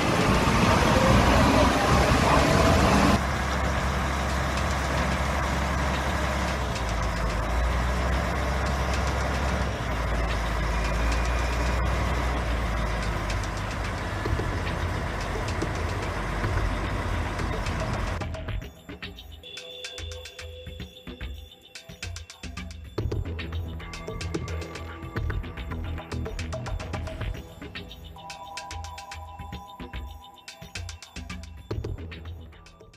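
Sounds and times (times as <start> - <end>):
loud noisy vehicle: 0.0 - 18.4
diesel engine running: 0.0 - 18.6.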